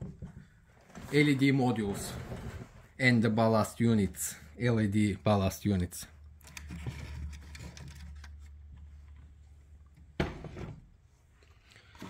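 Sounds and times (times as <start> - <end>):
plastic scraping on wood: 0.2 - 2.9, 6.5 - 8.5
plastic object knocking down: 10.2 - 10.8.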